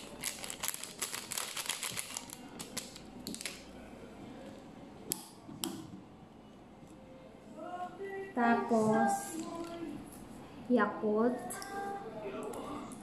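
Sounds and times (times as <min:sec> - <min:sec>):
plastic sachet crinkling: 0:00.0 - 0:03.7.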